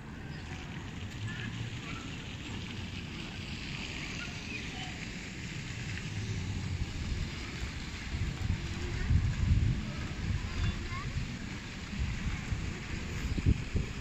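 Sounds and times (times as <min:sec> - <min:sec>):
traffic hiss and rumble: 0:00.0 - 0:14.0.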